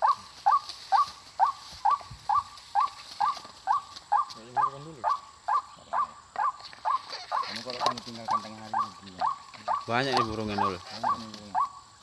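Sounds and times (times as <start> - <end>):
waterhen calling: 0.0 - 12.0.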